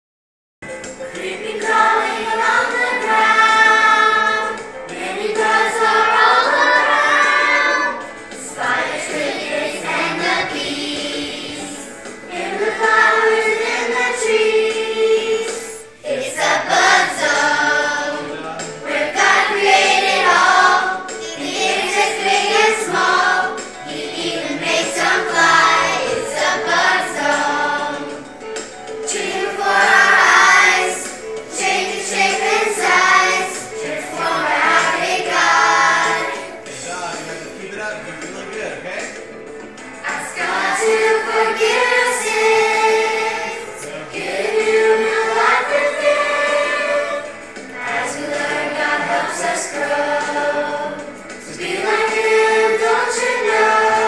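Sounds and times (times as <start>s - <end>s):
young children singing together: 1.1s - 28.4s, 29.0s - 37.6s, 40.0s - 54.0s.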